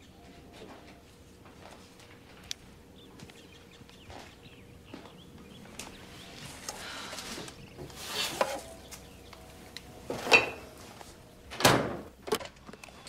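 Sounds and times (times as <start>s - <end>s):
refrigerator door knocks and thud: 11.5s - 12.1s.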